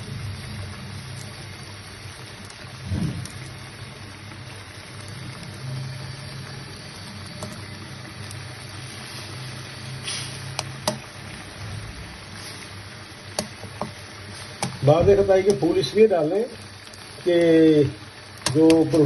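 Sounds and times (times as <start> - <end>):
meat simmering in a pan: 0.0 - 19.0
steady low hum: 0.0 - 19.0.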